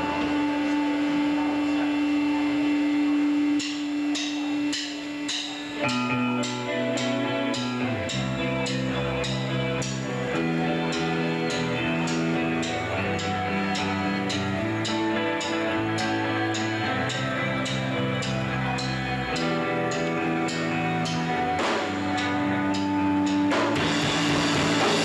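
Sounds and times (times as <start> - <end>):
bass and guitars playing chords: 0.0 - 25.0
electric guitar held note: 0.0 - 25.0
drum beat: 20.5 - 25.0.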